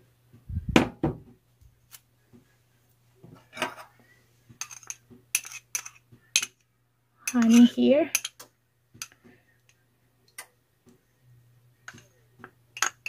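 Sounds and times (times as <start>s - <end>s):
glass and ceramic clinking: 12.8s - 13.0s.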